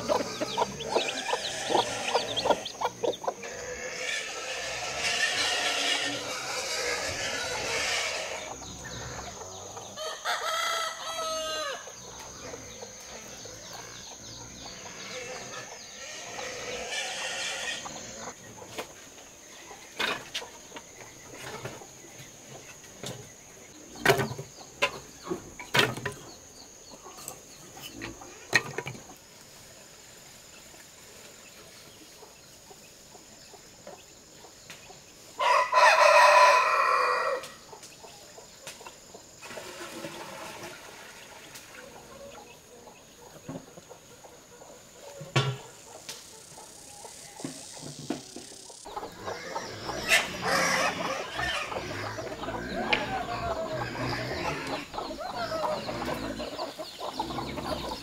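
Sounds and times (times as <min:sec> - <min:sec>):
chickens clucking: 0:00.0 - 0:58.0
rooster crowing: 0:10.0 - 0:11.9, 0:35.4 - 0:37.6.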